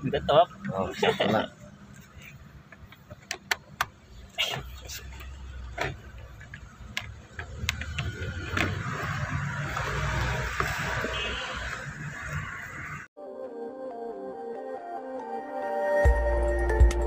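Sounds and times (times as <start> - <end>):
handbrake ratchet clicks: 2.8 - 4.0, 5.7 - 8.9.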